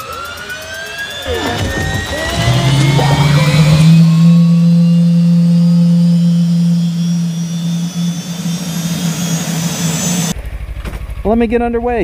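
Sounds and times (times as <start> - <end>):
jet engine hum: 1.2 - 10.4
high whine rising in pitch: 1.3 - 10.4.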